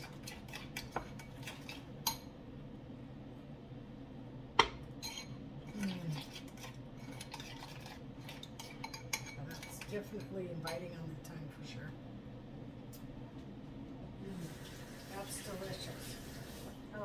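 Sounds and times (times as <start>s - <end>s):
metal spoon clinking against bowl: 8.4s - 10.9s.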